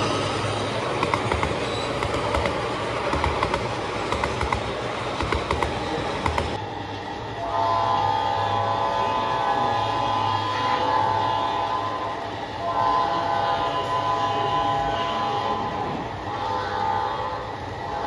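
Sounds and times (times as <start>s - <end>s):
model train wheels clicking: 0.0s - 7.0s
multi-tone diesel horn: 7.4s - 16.0s.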